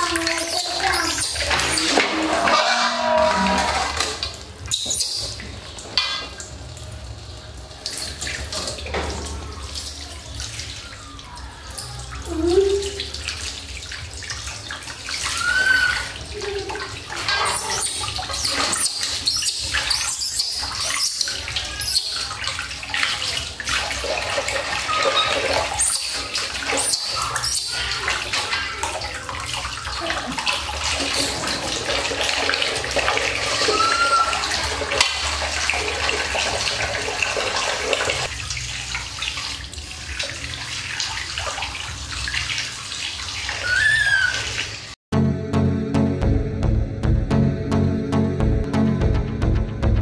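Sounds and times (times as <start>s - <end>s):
water splashing into steel basin: 0.0s - 45.0s
baby monkey crying: 15.2s - 16.8s, 17.5s - 22.3s, 33.6s - 34.6s, 43.6s - 44.6s.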